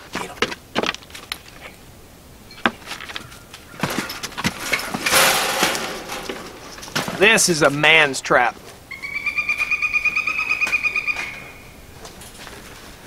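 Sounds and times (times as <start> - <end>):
wire-mesh cage rattling and scraping: 2.6 - 7.8.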